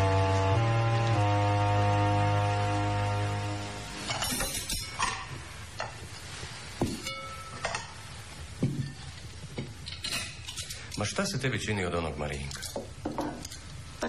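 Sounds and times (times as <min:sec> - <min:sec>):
held music chord: 0:00.0 - 0:04.2
dishes and cutlery clinking: 0:04.0 - 0:11.1, 0:12.4 - 0:13.7.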